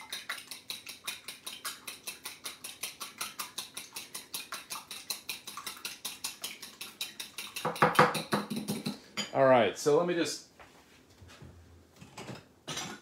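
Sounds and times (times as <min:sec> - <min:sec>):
eggs beaten in a bowl: 0:00.0 - 0:09.1.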